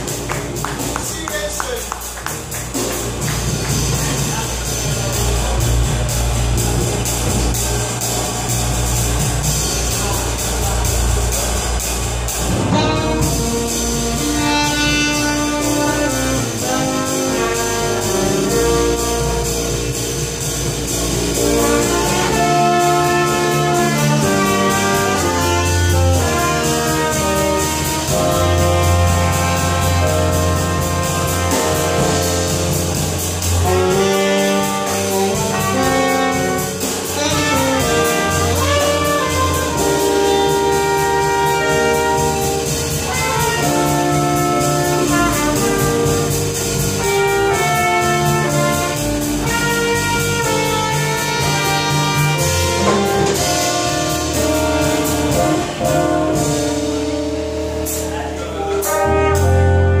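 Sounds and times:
alto saxophone: 0.0s - 60.0s
bass guitar: 0.0s - 60.0s
drums with cymbals: 0.0s - 60.0s
electric keyboards: 0.0s - 60.0s
trumpet melody: 0.0s - 60.0s.

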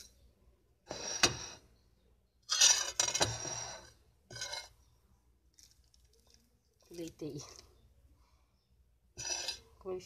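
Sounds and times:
knife scraping ceramic plate: 0.9s - 1.6s, 2.5s - 4.8s, 9.2s - 9.7s.

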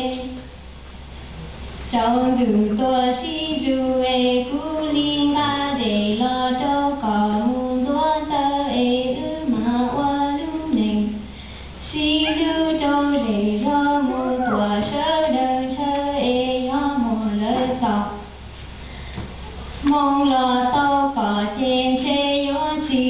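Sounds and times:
person singing: 12.0s - 15.8s.

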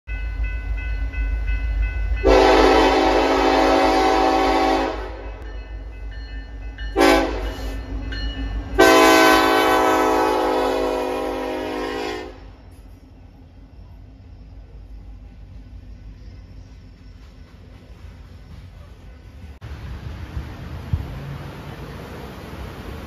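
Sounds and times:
low rumble of locomotives: 0.1s - 23.0s
locomotive horn blasts: 2.2s - 5.4s, 7.0s - 7.8s, 8.8s - 12.6s.

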